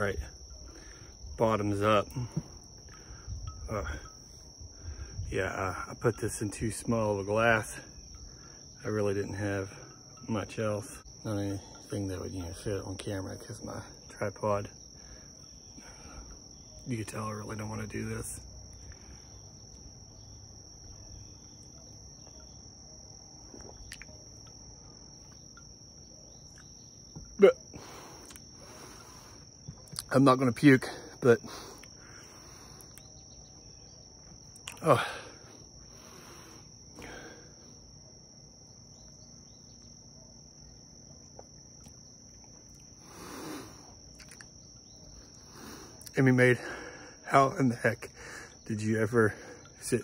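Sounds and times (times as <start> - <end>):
insects droning: 0.0 - 50.0
bird chirps: 32.6 - 34.7.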